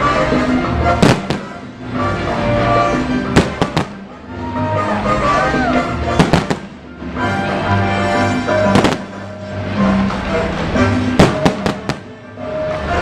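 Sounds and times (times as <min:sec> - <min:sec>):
loud music with held notes: 0:00.0 - 0:13.0
fireworks bangs: 0:01.0 - 0:01.7, 0:03.4 - 0:04.0, 0:06.1 - 0:06.7, 0:08.6 - 0:09.3, 0:11.2 - 0:12.3.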